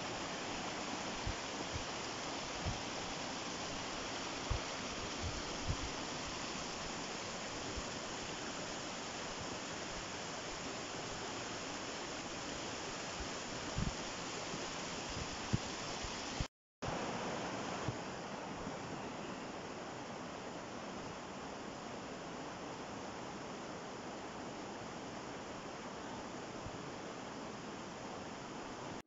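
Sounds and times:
river water rushing over rocks: 0.0s - 18.9s.

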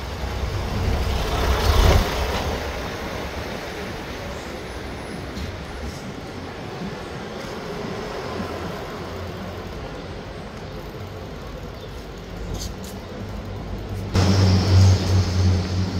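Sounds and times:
vehicle road noise: 0.0s - 15.9s
low hum: 14.1s - 15.9s.

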